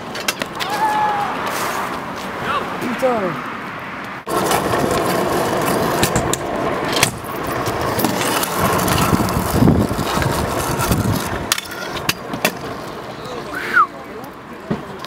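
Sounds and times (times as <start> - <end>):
scooter wheels rolling on asphalt: 0.0 - 15.0.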